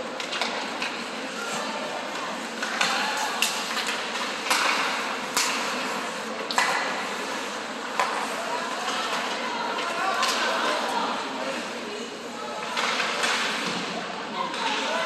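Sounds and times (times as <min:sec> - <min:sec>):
sharp clacks of hockey play: 0:00.1 - 0:01.5, 0:02.5 - 0:10.6, 0:12.6 - 0:13.9.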